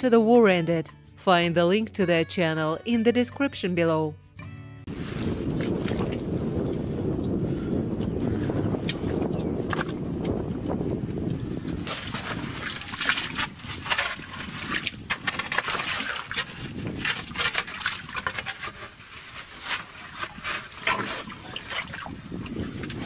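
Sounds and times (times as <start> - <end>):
hands sloshing in muddy water: 4.9 - 6.9, 11.8 - 23.0.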